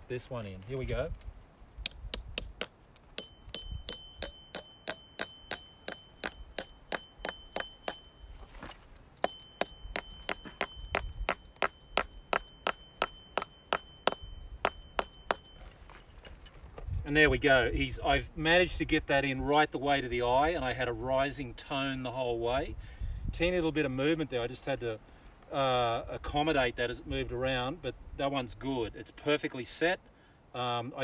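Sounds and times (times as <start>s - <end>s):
hammer striking metal piton: 1.8s - 8.2s, 9.2s - 15.6s.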